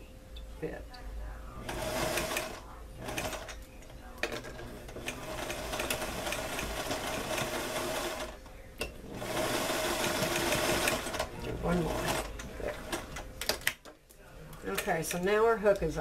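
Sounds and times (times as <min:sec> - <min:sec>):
sewing machine stitching: 0:01.6 - 0:03.5, 0:04.2 - 0:08.4, 0:09.1 - 0:13.2.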